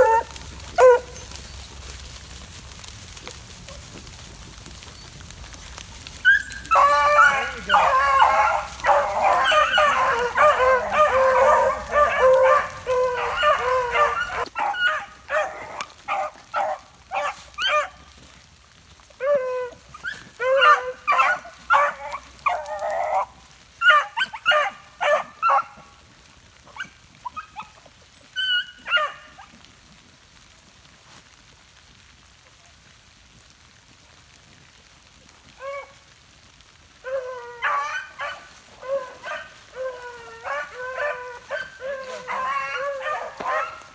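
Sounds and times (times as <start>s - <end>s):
dogs baying: 0.0s - 1.4s, 6.1s - 18.0s, 19.2s - 25.8s, 37.0s - 43.9s.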